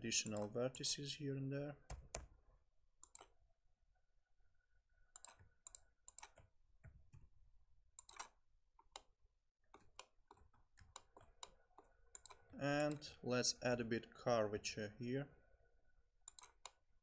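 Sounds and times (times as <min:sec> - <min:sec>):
computer mouse clicks: 0:00.2 - 0:00.8, 0:03.0 - 0:03.4, 0:05.1 - 0:07.3, 0:08.0 - 0:09.1, 0:09.7 - 0:13.2, 0:16.2 - 0:16.8.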